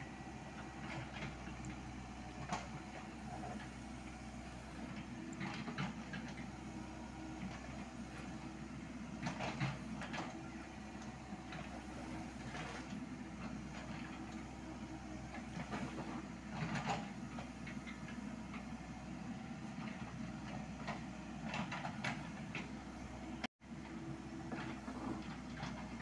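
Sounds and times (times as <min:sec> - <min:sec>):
excavator diesel engine running: 0:00.0 - 0:26.0.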